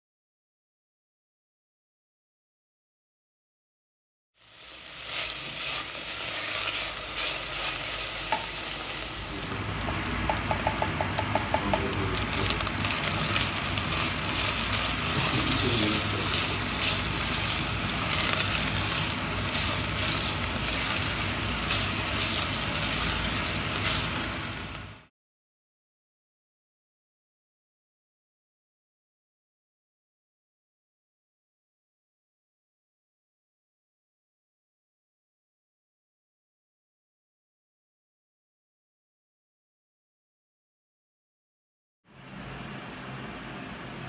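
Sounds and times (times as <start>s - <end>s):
meat sizzling in a pot: 4.4s - 25.1s
spatula stirring and scraping: 4.7s - 9.2s, 9.8s - 24.2s.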